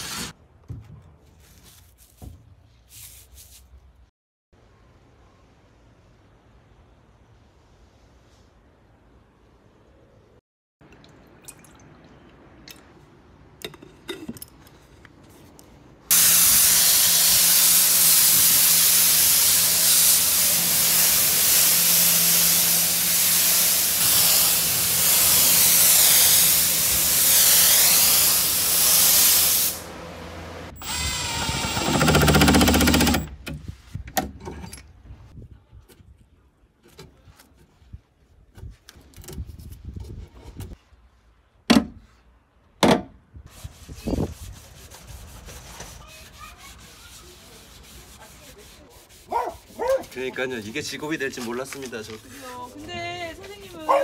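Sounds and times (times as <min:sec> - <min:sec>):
spray gun hissing: 0:16.1 - 0:29.9.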